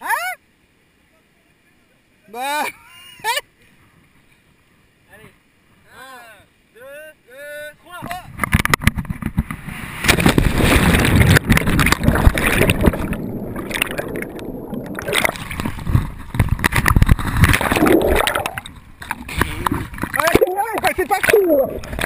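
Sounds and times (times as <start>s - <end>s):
water sloshing and gurgling: 8.3s - 22.0s
splash of person entering water: 15.0s - 16.0s, 16.7s - 18.7s.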